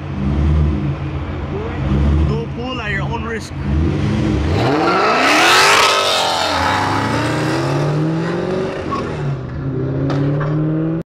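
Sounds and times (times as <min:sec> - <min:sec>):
car engine accelerating: 0:03.5 - 0:11.0.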